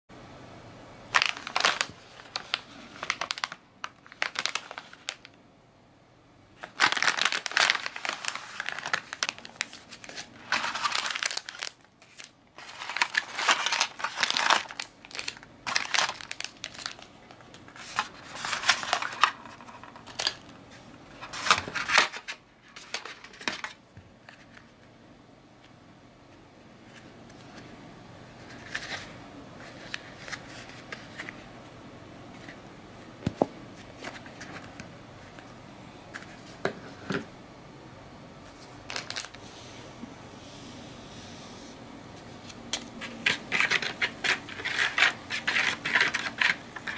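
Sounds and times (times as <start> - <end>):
plastic wrapper crinkling: 1.1 - 5.4, 6.6 - 24.6, 38.5 - 39.4, 42.8 - 46.9.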